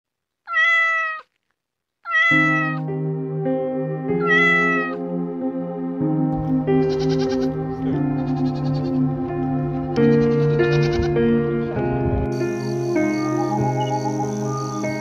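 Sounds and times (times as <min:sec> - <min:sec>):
cat meowing: 0:00.5 - 0:01.3, 0:02.0 - 0:02.9, 0:04.2 - 0:05.0, 0:06.8 - 0:07.6
background music: 0:02.3 - 0:15.0.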